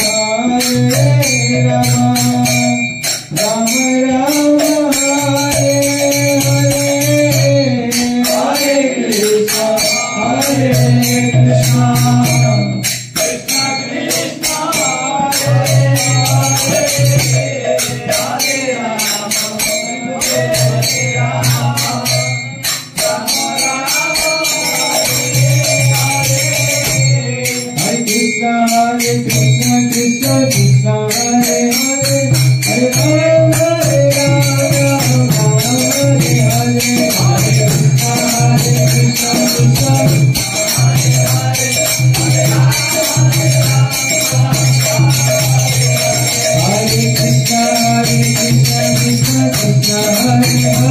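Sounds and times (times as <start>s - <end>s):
jingling hand percussion: 0.0s - 50.9s
man singing into a microphone: 0.0s - 50.9s
group chanting: 7.7s - 28.1s.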